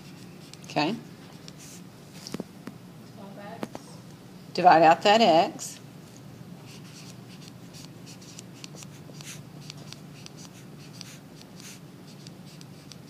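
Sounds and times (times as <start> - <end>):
stylus tapping and scratching screen: 6.7 - 13.0.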